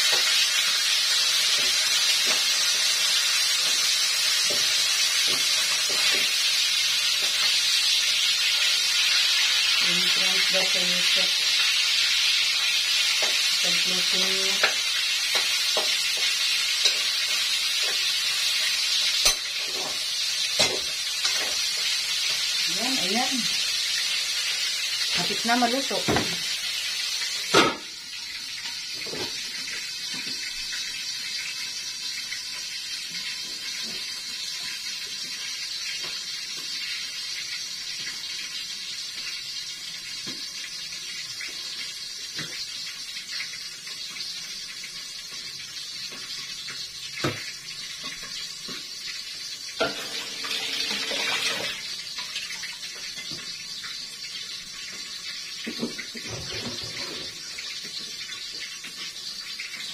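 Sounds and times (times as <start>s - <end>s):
food sizzling in a pan: 0.0s - 59.9s.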